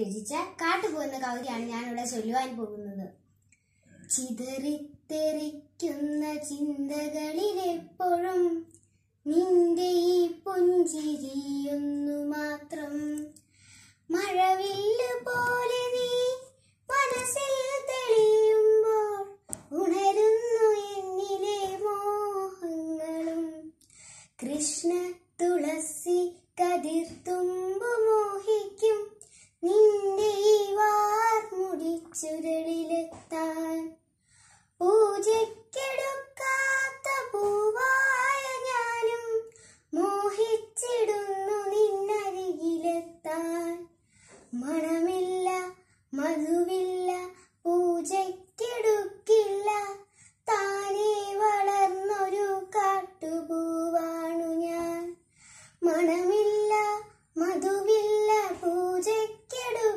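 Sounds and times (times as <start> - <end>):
girl chanting a poem: 0.0 - 3.2.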